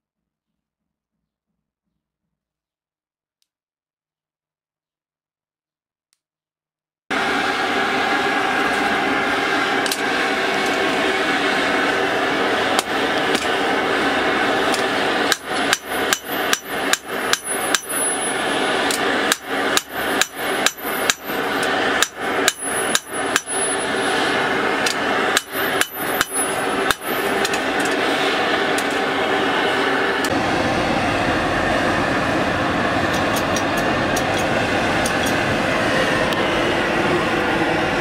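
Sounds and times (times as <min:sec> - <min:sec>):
forge blower whirring: 0:07.1 - 0:38.0
hammer striking steel on anvil: 0:14.7 - 0:24.0, 0:24.8 - 0:28.0.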